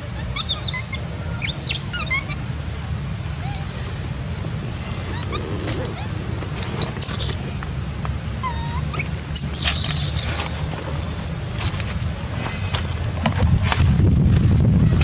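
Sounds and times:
baby monkey crying: 0.0s - 2.4s, 4.8s - 6.2s, 8.4s - 10.3s
low rumble: 1.0s - 8.6s.

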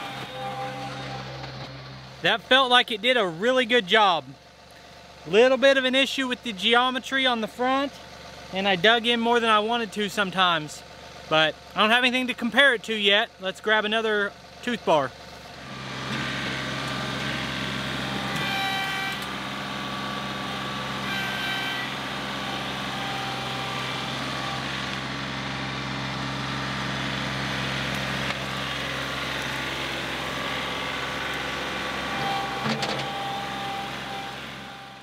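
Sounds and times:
high whine: 0.0s - 2.3s, 18.0s - 35.0s
loader scooping dirt: 0.0s - 3.8s, 15.2s - 35.0s
tractor diesel engine running: 0.0s - 35.0s.

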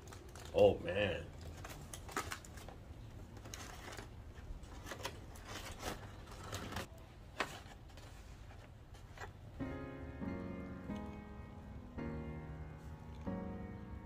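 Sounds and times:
aluminum foil crinkling: 0.0s - 9.4s.

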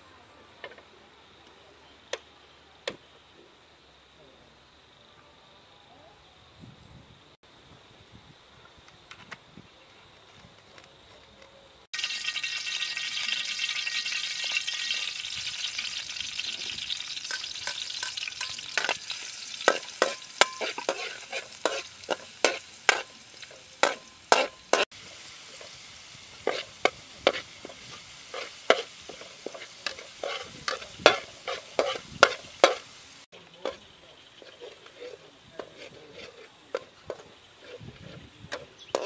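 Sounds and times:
garlic sizzling in oil: 11.9s - 39.0s
metal ladle scraping a wok: 16.6s - 24.9s, 26.4s - 32.9s, 34.4s - 39.0s.

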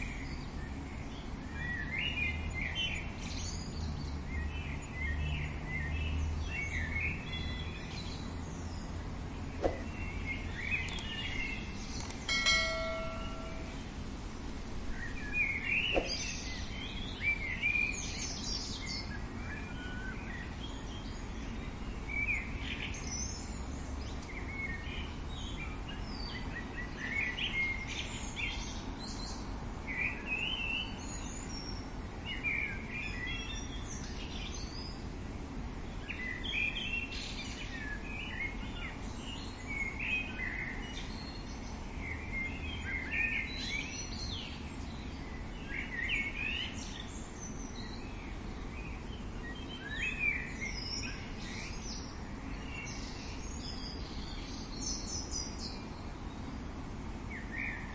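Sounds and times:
bird chirps and trills: 0.0s - 14.0s, 14.9s - 29.4s
low background noise: 0.0s - 57.9s.

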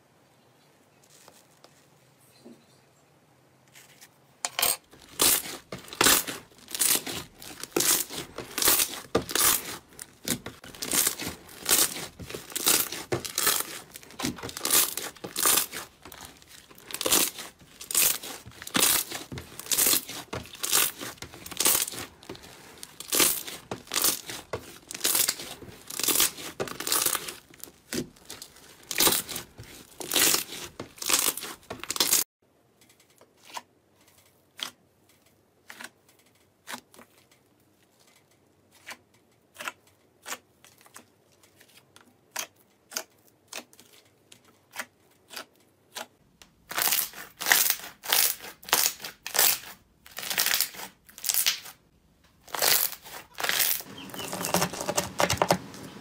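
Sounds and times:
slime squeezed crackling and popping: 5.0s - 32.2s, 46.7s - 51.7s, 52.4s - 55.3s.

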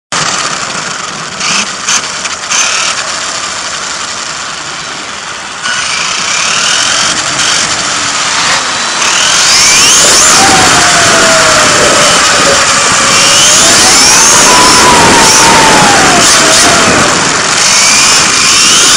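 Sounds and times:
rushing noise: 0.1s - 18.9s
motor whining: 5.0s - 18.9s.

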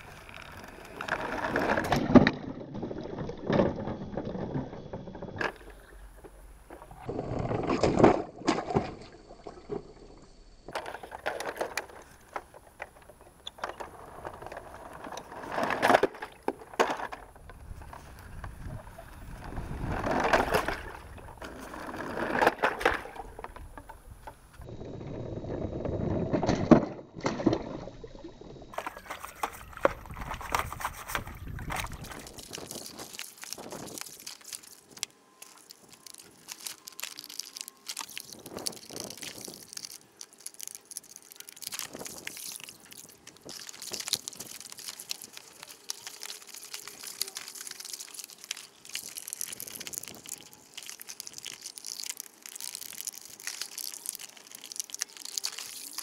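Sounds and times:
water sloshing and splashing: 5.4s - 24.0s, 27.2s - 56.0s
brush scrubbing plastic: 28.8s - 56.0s.

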